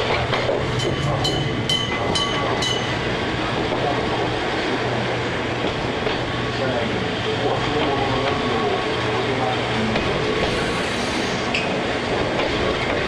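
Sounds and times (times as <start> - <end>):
train rumbling along tracks: 0.0 - 13.0
level-crossing warning bell: 0.7 - 3.2.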